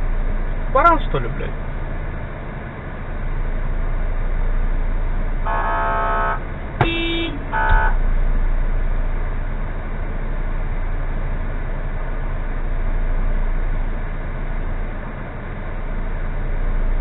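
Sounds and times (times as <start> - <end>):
car engine idling: 0.0 - 17.0
car horn honking: 5.4 - 8.1
short tone: 5.5 - 8.1.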